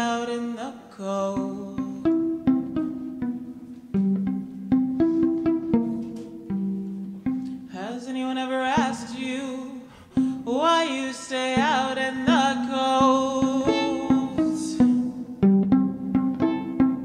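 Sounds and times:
woman singing with vibrato: 0:00.0 - 0:02.3, 0:07.7 - 0:15.4
violin plucked pizzicato: 0:01.2 - 0:17.0.

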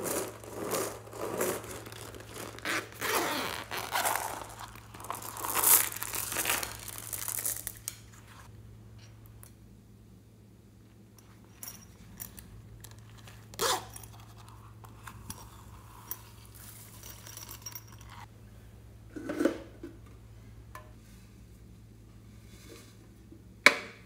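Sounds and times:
sequins and beads pouring: 0:00.0 - 0:03.0, 0:03.6 - 0:07.9.

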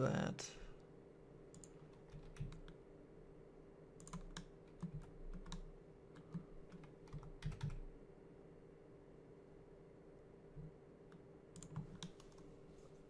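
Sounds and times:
faint steady hum: 0:00.0 - 0:13.0
keyboard and mouse clicking: 0:01.5 - 0:02.8, 0:04.0 - 0:07.9, 0:10.6 - 0:12.5.

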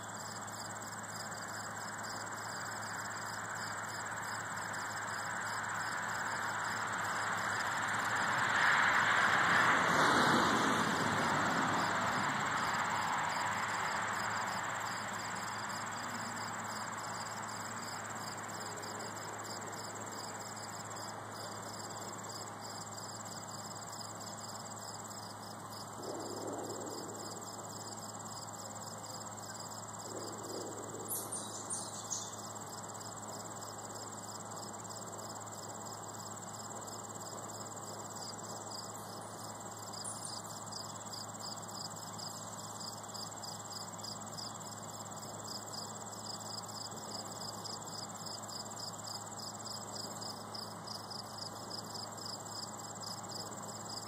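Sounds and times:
crickets chirping: 0:00.0 - 0:54.0
vehicle passing: 0:05.6 - 0:16.8.

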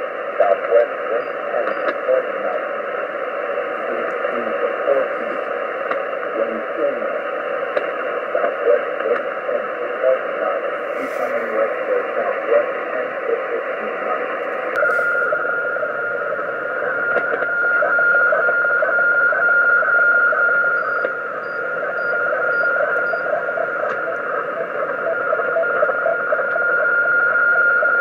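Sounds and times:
radio static hiss: 0:00.0 - 0:28.0
steady radio whistle: 0:00.0 - 0:28.0
radio click: 0:00.6 - 0:02.6, 0:03.9 - 0:05.0, 0:05.8 - 0:06.3, 0:07.7 - 0:09.6, 0:10.2 - 0:15.4, 0:16.8 - 0:17.6, 0:21.0 - 0:21.2, 0:21.8 - 0:26.7.

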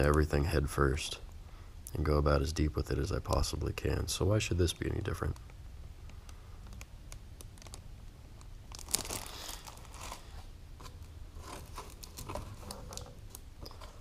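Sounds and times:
plastic bags crinkling: 0:07.4 - 0:14.0.

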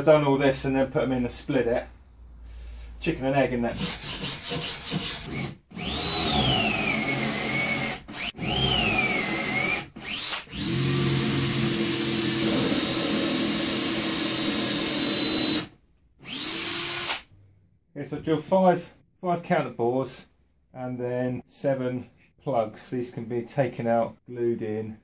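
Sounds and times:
cordless drill boring into wood: 0:04.6 - 0:17.3.

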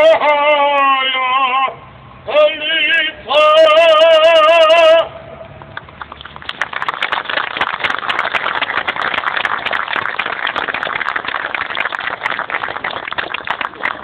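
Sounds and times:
crowd applauding: 0:05.8 - 0:14.0.

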